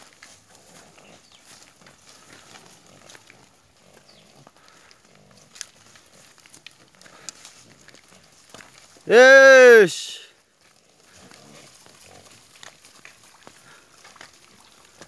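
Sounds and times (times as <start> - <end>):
pigs grunting: 11.0 - 12.4.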